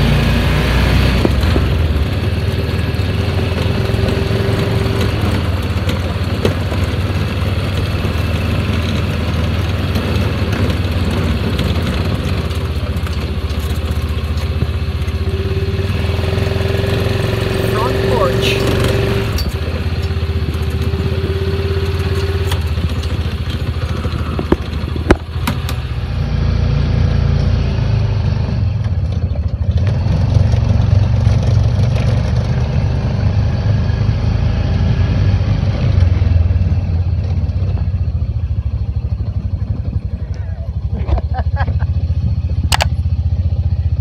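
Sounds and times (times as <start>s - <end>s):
vehicle engine running: 0.0s - 44.0s.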